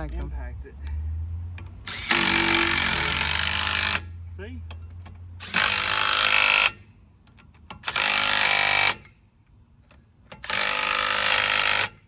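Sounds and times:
impact wrench hammering: 1.5 - 4.1, 4.7 - 6.8, 7.5 - 9.1, 10.3 - 12.0.

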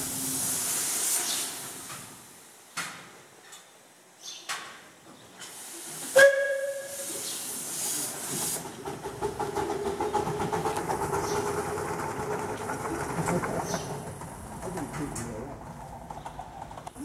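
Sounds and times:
steam hissing: 0.0 - 2.7, 5.4 - 15.2
steam locomotive exhaust beats: 5.6 - 17.0
steam whistle toot: 6.1 - 7.2.

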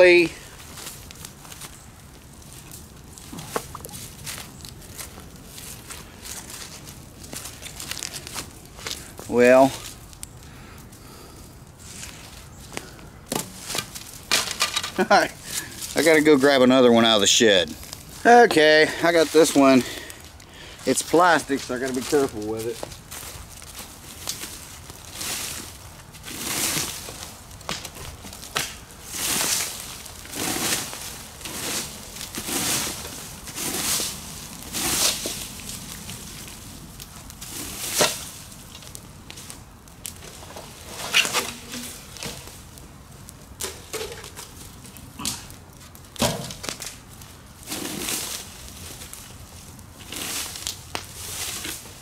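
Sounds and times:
rake scraping through dry leaves: 2.4 - 10.1, 20.9 - 27.4, 29.0 - 42.8, 47.6 - 52.0.

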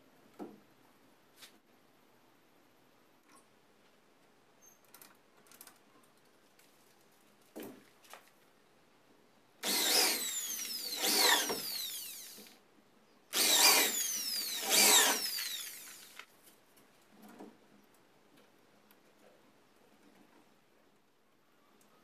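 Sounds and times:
electric drill boring into wood: 9.6 - 12.5, 13.3 - 16.2.

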